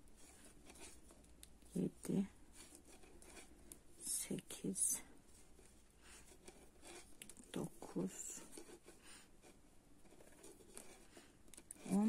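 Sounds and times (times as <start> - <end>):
soft voice sounds: 11.8 - 12.0.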